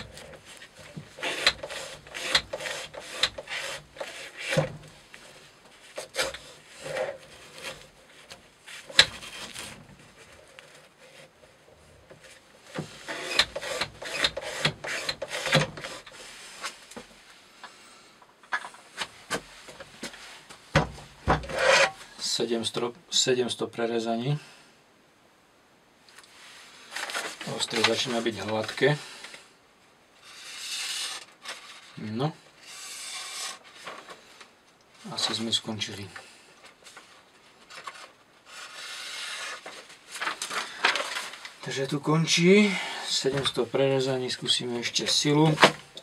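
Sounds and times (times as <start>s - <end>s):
knife cutting rope: 0.0s - 4.7s.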